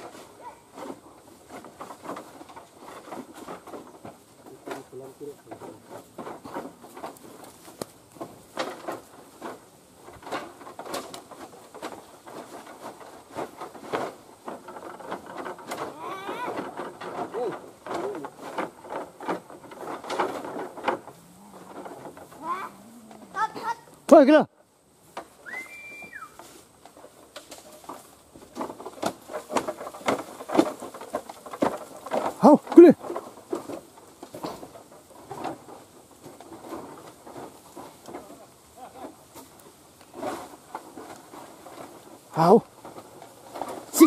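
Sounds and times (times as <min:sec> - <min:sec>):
dry leaves rustling: 0:00.0 - 0:44.0
short whistled note: 0:25.4 - 0:26.3.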